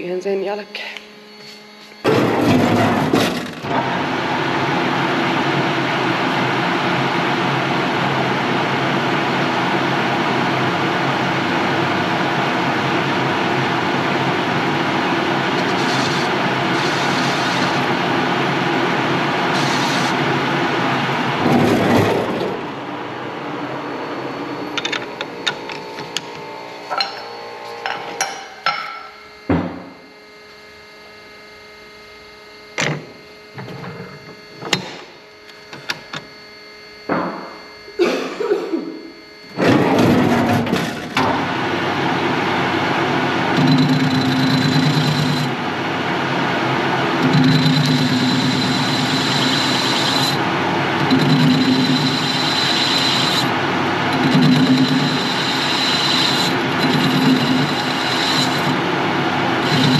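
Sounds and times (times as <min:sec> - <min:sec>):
grinder running: 0:01.2 - 0:22.7, 0:24.2 - 0:29.3, 0:39.6 - 0:59.9.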